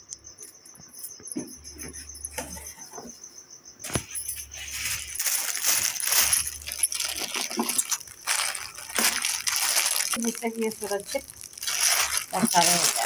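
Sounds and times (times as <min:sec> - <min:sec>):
bubble wrap crinkling: 0:03.9 - 0:13.0.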